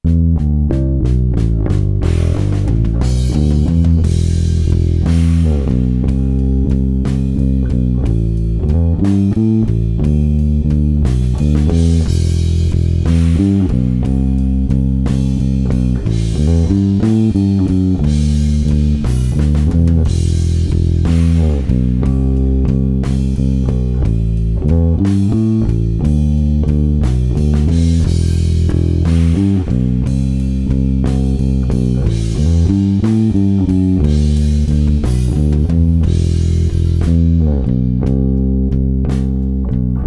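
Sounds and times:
bass guitar line: 0.0 - 40.0
drum kit playing: 0.0 - 40.0.

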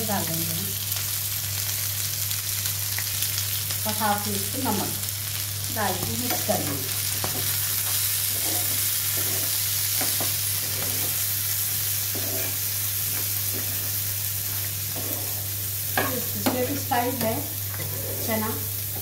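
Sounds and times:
food sizzling in oil: 0.0 - 19.0
spatula scraping and knocking pan: 6.1 - 19.0.

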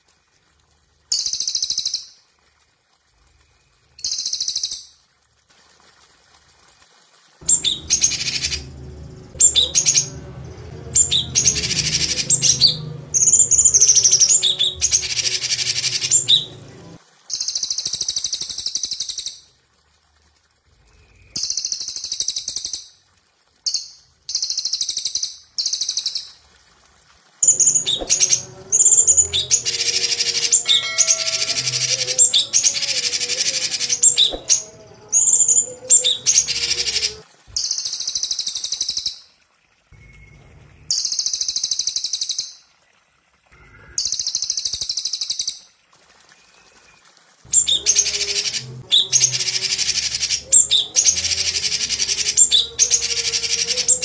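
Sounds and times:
birds singing rapid trills: 7.4 - 16.9, 27.4 - 37.2, 47.5 - 54.0.

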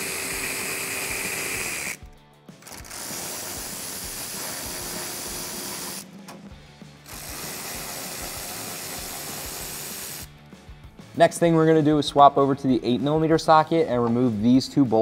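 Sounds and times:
electric ratchet motor whirring: 0.0 - 2.0, 2.6 - 6.0, 7.1 - 10.3.

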